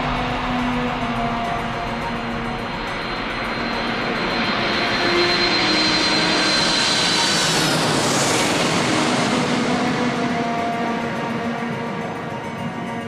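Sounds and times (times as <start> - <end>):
jet engines whining: 0.0 - 11.4.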